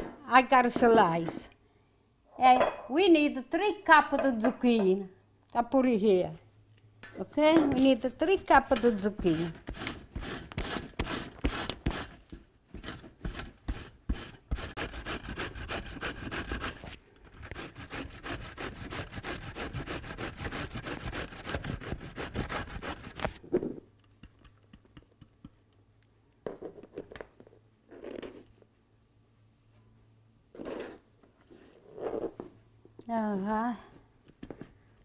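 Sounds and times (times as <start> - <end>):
zucchini rasping on grater: 9.2 - 12.2, 13.7 - 23.3.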